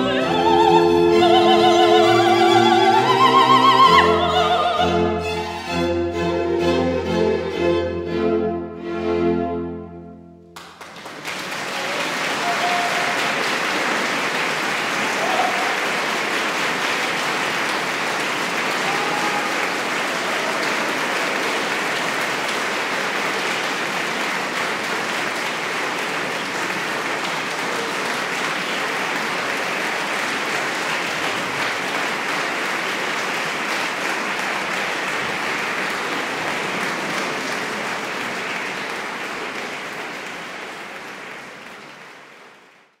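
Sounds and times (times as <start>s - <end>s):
audience applauding: 10.6s - 43.0s.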